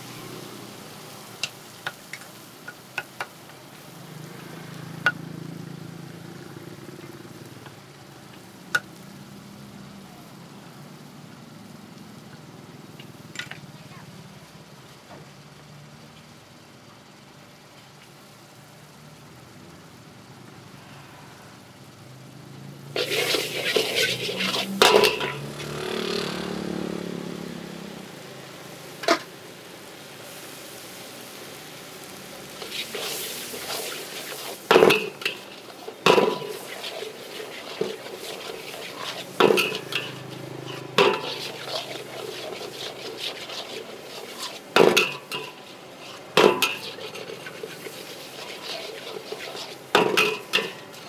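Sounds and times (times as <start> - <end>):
frying sizzle: 0.0 - 51.0
metal spatula scraping wok: 22.9 - 26.8, 32.4 - 51.0.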